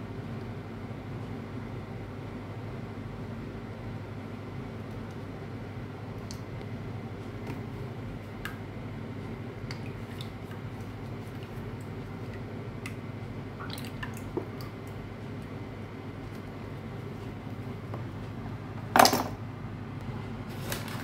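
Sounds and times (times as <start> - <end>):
low steady hum: 0.0 - 21.0
small drips and ticks: 6.2 - 6.7, 9.6 - 15.5.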